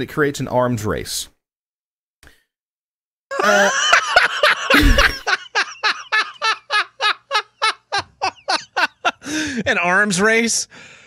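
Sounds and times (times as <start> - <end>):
man laughing hard: 3.3 - 9.6.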